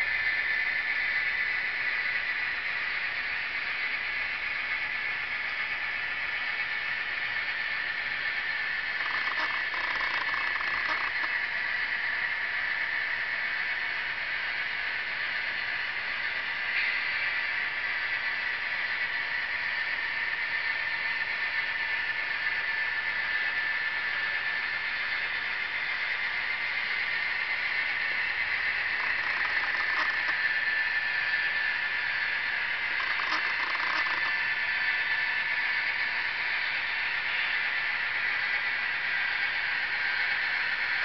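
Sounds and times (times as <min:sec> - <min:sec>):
model train motor whir: 0:00.0 - 0:41.0
faint rattles: 0:08.9 - 0:11.3, 0:28.8 - 0:30.5, 0:32.8 - 0:34.4.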